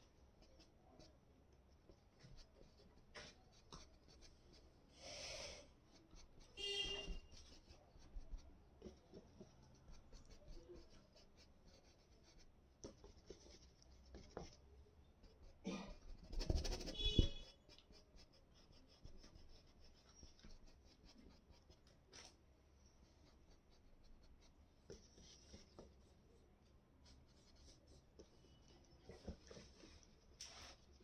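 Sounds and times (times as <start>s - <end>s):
paintbrush strokes on canvas: 5.4s - 14.6s, 15.2s - 26.4s, 27.0s - 31.0s.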